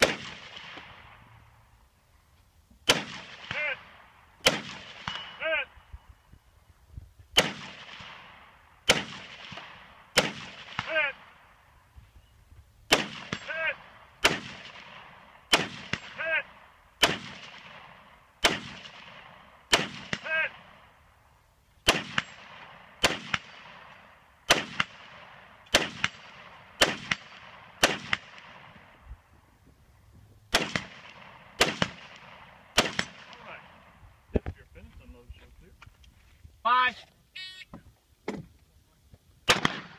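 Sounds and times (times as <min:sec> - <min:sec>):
rifle shots with echo: 0:00.0 - 0:01.2, 0:02.8 - 0:05.7, 0:07.4 - 0:11.6, 0:12.9 - 0:21.0, 0:21.8 - 0:29.0, 0:30.5 - 0:34.0, 0:39.4 - 0:39.9.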